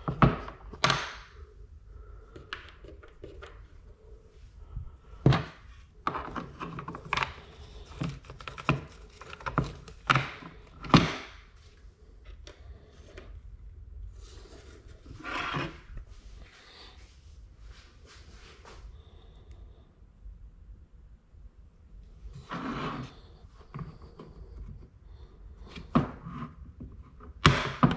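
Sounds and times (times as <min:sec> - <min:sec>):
plastic parts clicking and knocking: 0:05.2 - 0:11.4.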